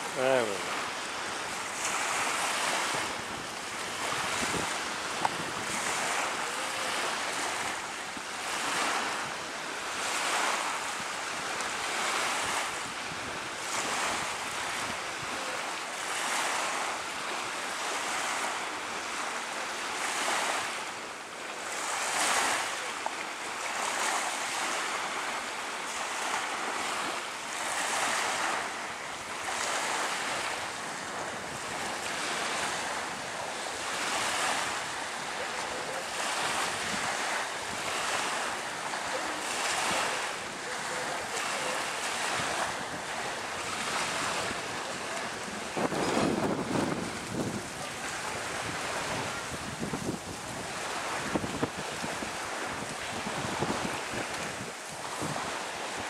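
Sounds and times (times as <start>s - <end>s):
small waves breaking on shore: 0.0s - 56.0s
steady wind: 0.0s - 56.0s.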